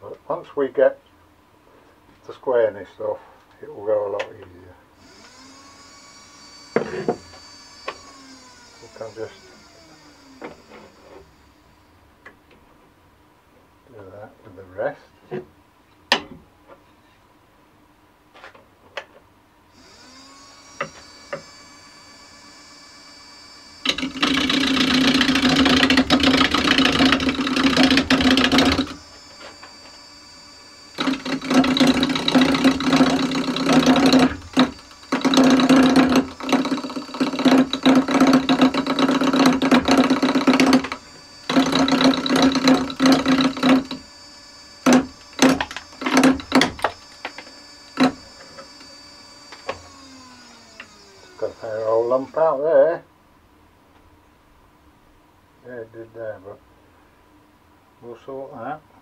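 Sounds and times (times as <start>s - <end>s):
lathe motor humming: 5.0s - 12.0s, 19.7s - 52.6s
lathe tool cutting wood: 5.0s - 12.0s, 19.7s - 52.6s.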